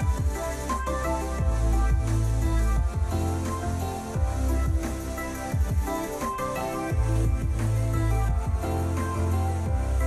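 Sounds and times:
electronic music with deep bass: 0:00.0 - 0:10.0
kick drum hits: 0:05.5 - 0:05.9, 0:08.3 - 0:08.7.

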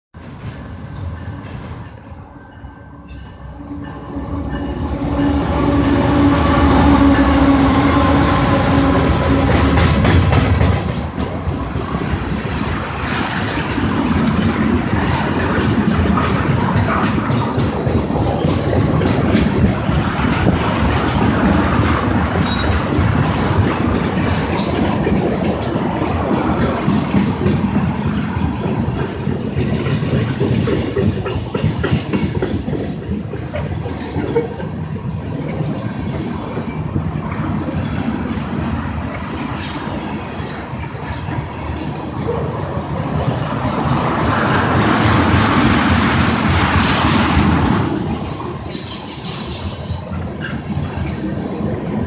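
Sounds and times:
locomotive engine rumble: 0:03.2 - 0:37.7.

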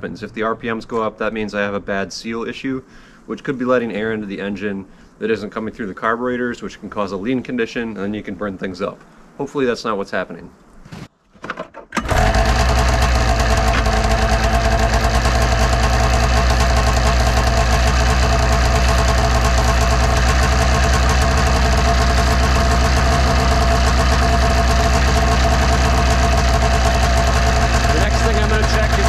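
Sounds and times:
two-stroke engine idling: 0:12.0 - 0:29.0.

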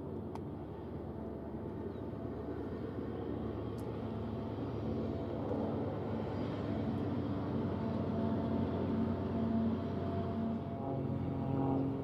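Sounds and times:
diesel locomotives droning: 0:00.0 - 0:12.0.

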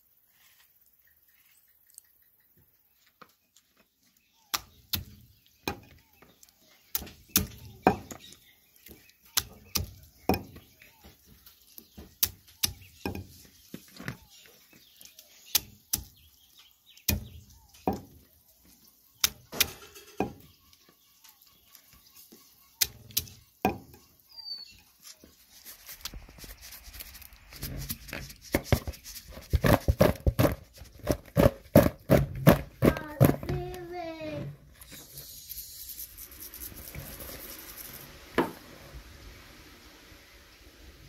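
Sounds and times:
stone pestle crushing fruit: 0:27.6 - 0:33.7
fruit clattering in plastic bowl: 0:28.6 - 0:33.8.

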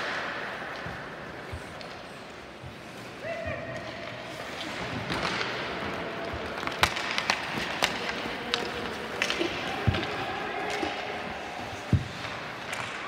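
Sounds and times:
hockey sticks hitting puck: 0:00.0 - 0:13.0
skates scraping ice: 0:00.0 - 0:13.0.

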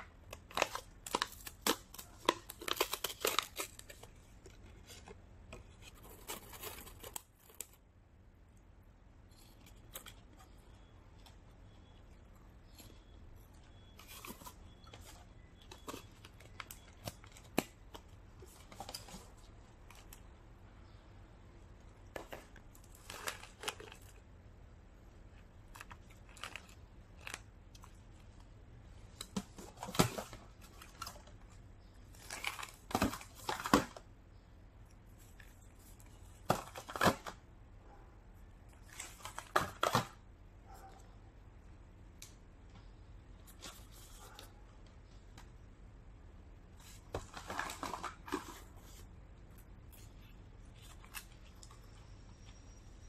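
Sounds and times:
foil crinkling: 0:00.3 - 0:04.2.

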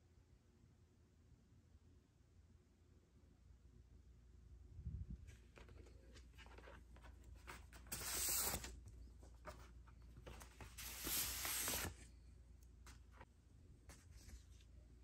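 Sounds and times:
paper sleeves rustling: 0:05.3 - 0:15.0
record sliding swishes: 0:07.7 - 0:08.8, 0:10.5 - 0:12.0.

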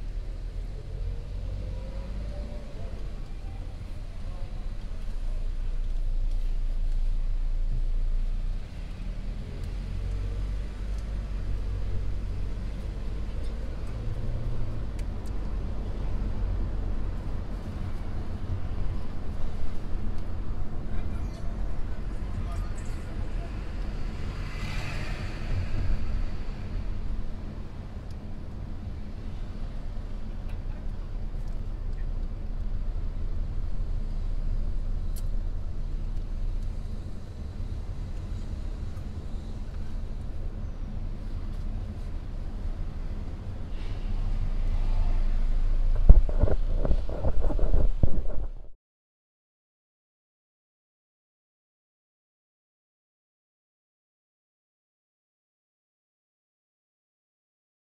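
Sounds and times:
car engine and road rumble: 0:00.0 - 0:48.8
car cabin road rumble: 0:25.1 - 0:48.8.

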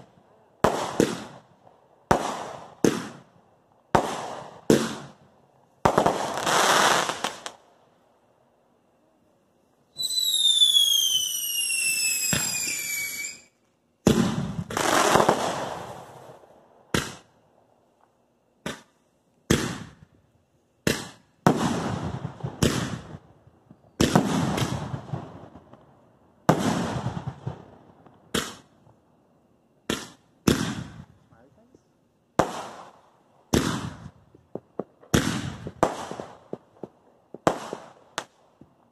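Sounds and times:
firework bangs with echo: 0:00.6 - 0:01.4, 0:02.1 - 0:03.3, 0:03.9 - 0:05.2, 0:14.0 - 0:16.2, 0:16.9 - 0:17.3, 0:19.5 - 0:20.0, 0:20.8 - 0:23.2, 0:24.0 - 0:25.6, 0:26.5 - 0:27.7, 0:28.3 - 0:28.7, 0:29.9 - 0:31.1, 0:32.4 - 0:38.4
firework whistle falling in pitch: 0:09.9 - 0:13.6.

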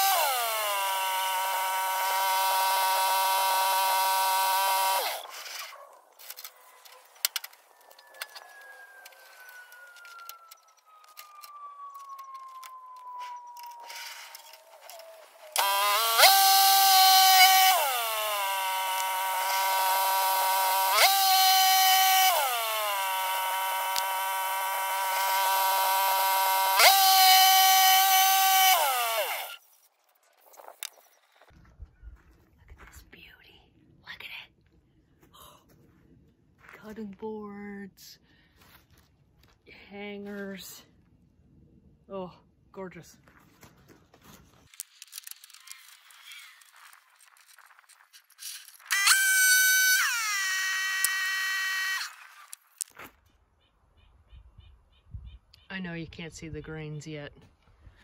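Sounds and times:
band sawmill whining: 0:00.0 - 0:05.8, 0:07.2 - 0:29.6, 0:48.6 - 0:52.7.

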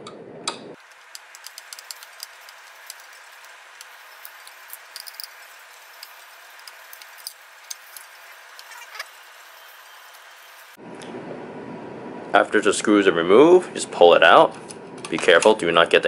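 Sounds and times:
faint steady hiss: 0:00.8 - 0:10.8.

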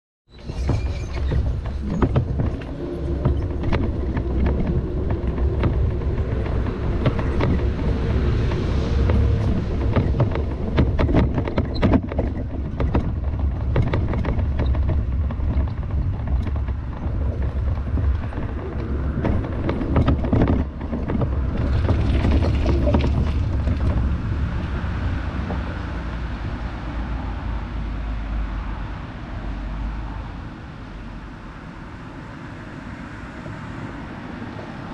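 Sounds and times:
wind rumbling on microphone: 0:00.3 - 0:34.9
bicycle rattling over gravel: 0:00.5 - 0:26.0.

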